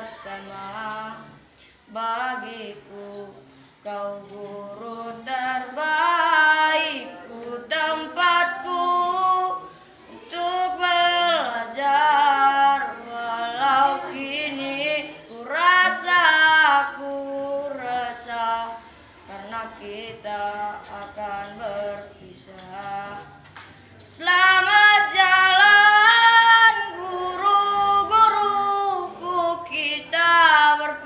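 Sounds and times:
boy singing: 0.0 - 31.0.

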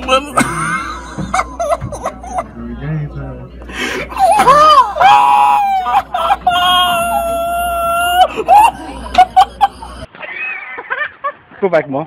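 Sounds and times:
person screaming: 0.0 - 1.2, 4.1 - 10.1
person yelping: 0.0 - 2.4, 4.1 - 10.1.

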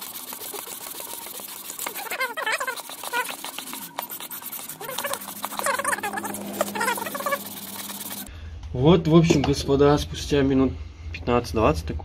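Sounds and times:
metal rasping on wet sandpaper: 0.0 - 8.3
short high squeaks: 0.4 - 8.3.

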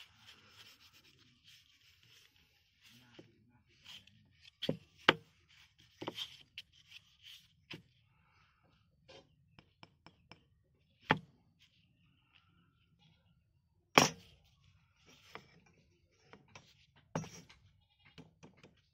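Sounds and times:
hands rubbing on wood: 0.0 - 3.2.

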